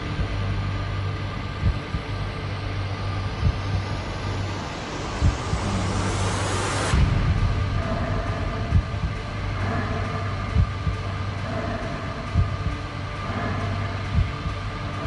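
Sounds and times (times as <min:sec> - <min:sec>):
steady low hum: 0:00.0 - 0:15.0
hissing riser climbing in pitch: 0:03.0 - 0:10.1
deep thuds: 0:06.9 - 0:14.6.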